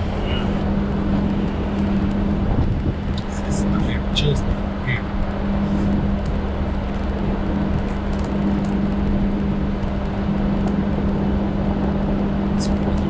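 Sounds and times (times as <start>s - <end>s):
low hum: 0.0s - 13.0s
truck engine driving slowly: 0.0s - 13.0s.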